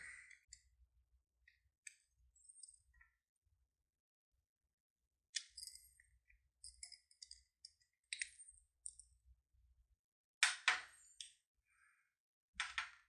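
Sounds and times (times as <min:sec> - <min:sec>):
metal pin clicking on padlock dials: 0:05.3 - 0:09.1.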